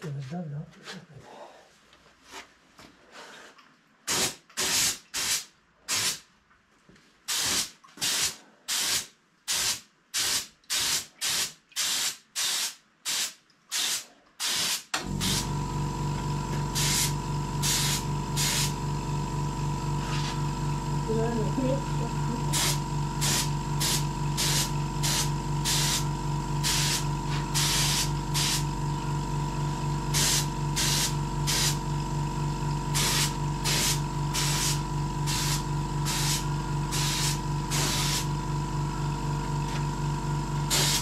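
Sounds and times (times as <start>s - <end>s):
spray gun short bursts: 4.1s - 6.2s, 7.3s - 15.5s, 16.7s - 18.8s, 22.5s - 28.7s, 30.1s - 31.8s, 32.9s - 38.3s, 40.7s - 41.0s
air compressor humming and whining: 14.6s - 41.0s.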